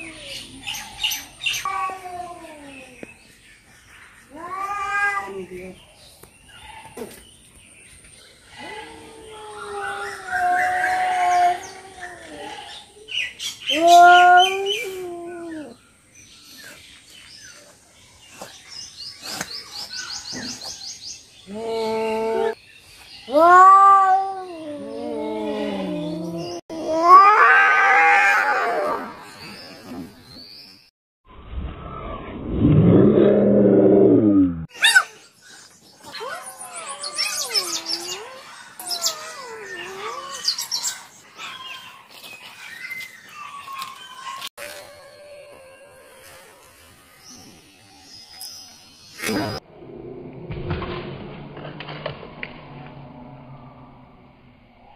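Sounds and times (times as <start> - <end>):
small birds chirping: 0.0 - 23.4, 34.7 - 44.6, 45.3 - 49.6
cats yowling: 1.6 - 3.0, 4.3 - 5.6, 8.6 - 12.9, 13.7 - 15.8, 23.3 - 29.2, 36.0 - 42.2
cat yowling: 13.7 - 15.7, 23.3 - 25.6, 26.7 - 29.1.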